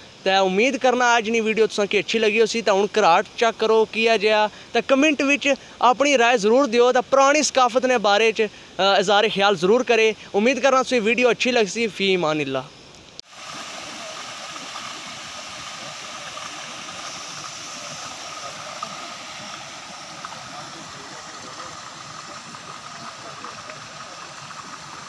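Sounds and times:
water rushing in stream: 13.2 - 25.0.

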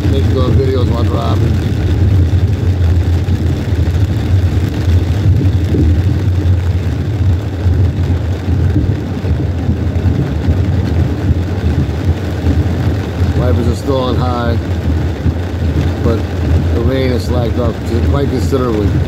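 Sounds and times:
car engine rumble: 0.0 - 19.0
tyres on wet pavement: 0.0 - 19.0.

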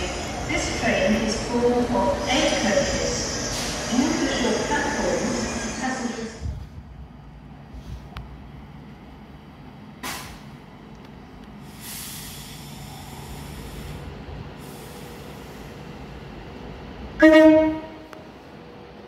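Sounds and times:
train brakes hissing: 2.0 - 6.4, 10.0 - 10.5, 11.6 - 16.0
train horn blast: 17.2 - 18.3.

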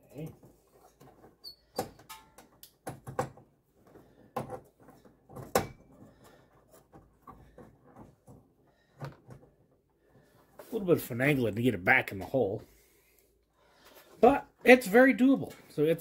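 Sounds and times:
plastic clicks and knocks: 1.0 - 3.5.

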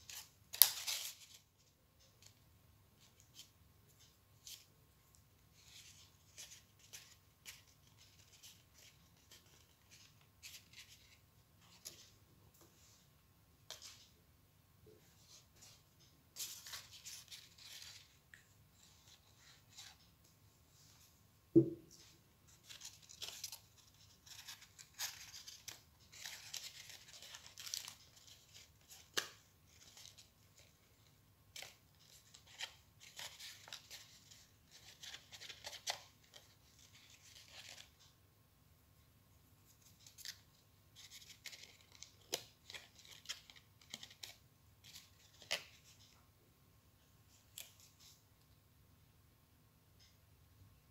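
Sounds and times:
paper rustling and scraping: 16.4 - 18.2, 22.5 - 30.8
low knock on table: 21.6 - 21.9.

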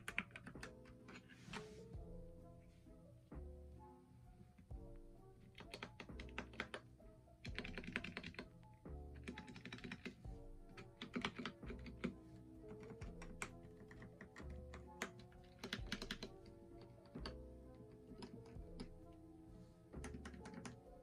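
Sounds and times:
background music: 0.0 - 21.0
mechanical keyboard key presses: 9.2 - 10.1, 10.8 - 16.3, 20.0 - 20.8.

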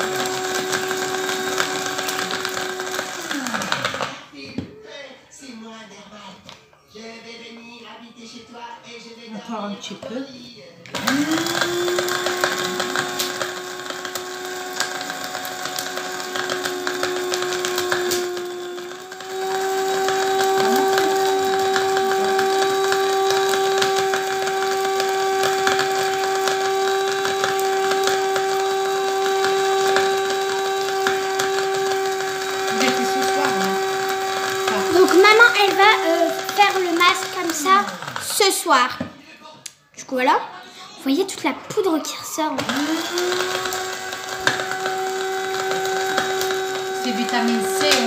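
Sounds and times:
electric blade grinder running: 0.0 - 4.2, 10.9 - 38.4, 42.5 - 48.0.

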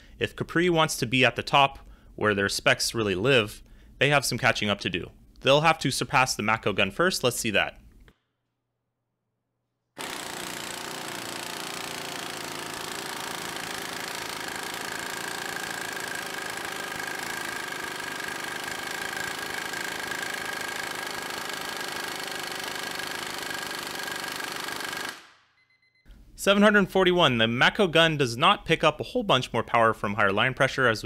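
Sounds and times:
pneumatic impact wrench hammering: 10.0 - 25.4.

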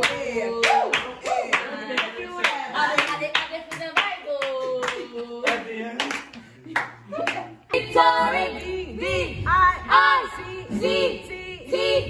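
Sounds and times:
voices singing: 0.0 - 6.3, 7.0 - 12.0
group clapping in rhythm: 0.0 - 8.8.

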